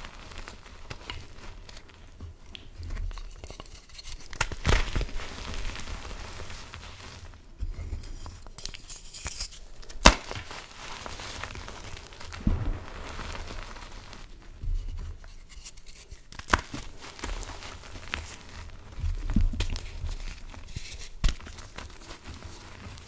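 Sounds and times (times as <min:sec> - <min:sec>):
chalk crunching and sifting: 0:00.0 - 0:02.2, 0:02.8 - 0:23.0
sharp crack: 0:09.9 - 0:10.6, 0:12.3 - 0:14.3.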